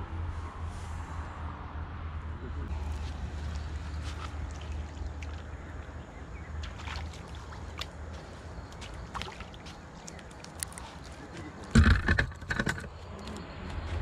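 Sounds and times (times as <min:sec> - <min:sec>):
fish splashing at surface: 0:02.8 - 0:05.6.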